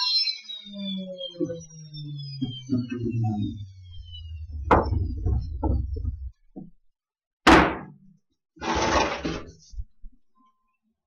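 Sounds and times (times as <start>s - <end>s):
low hum: 0.6s - 6.9s
wooden board knocks and thuds: 7.5s - 8.0s
brief scraping: 8.6s - 9.8s.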